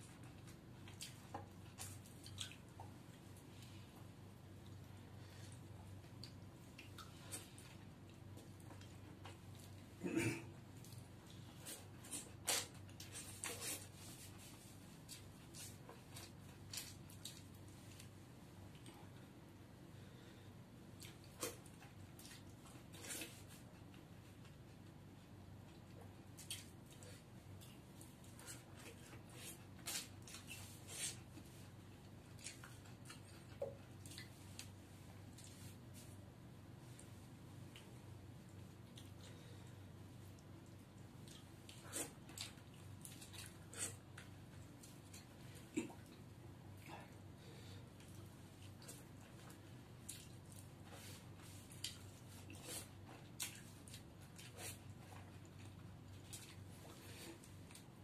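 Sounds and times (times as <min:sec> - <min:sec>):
faint low hum: 0:00.0 - 0:58.0
man chewing and sucking: 0:40.2 - 0:46.2, 0:48.0 - 0:57.9
person chewing and slurping: 0:41.2 - 0:46.2.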